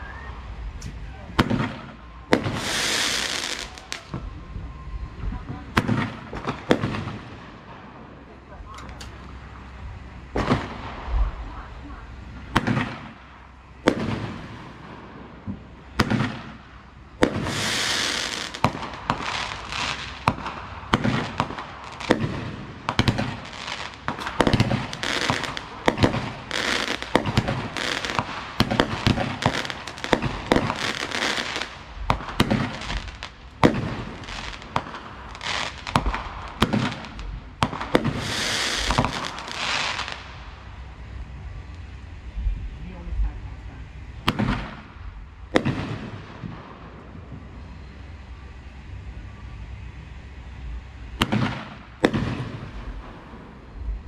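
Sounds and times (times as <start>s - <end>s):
dense firework hiss: 0.0s - 49.3s
firework shells bursting: 0.7s - 4.3s, 12.4s - 40.8s.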